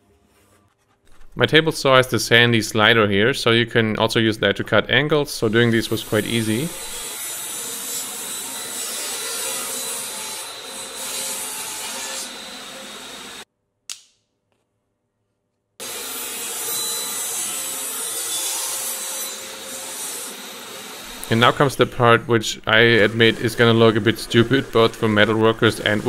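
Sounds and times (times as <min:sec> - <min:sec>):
table saw cutting plywood: 0:05.4 - 0:13.4, 0:15.8 - 0:26.0.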